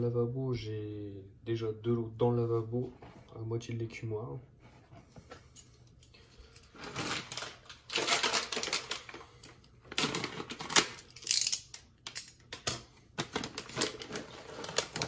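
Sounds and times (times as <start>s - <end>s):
plastic packet crinkling: 6.8s - 11.2s, 13.2s - 15.0s.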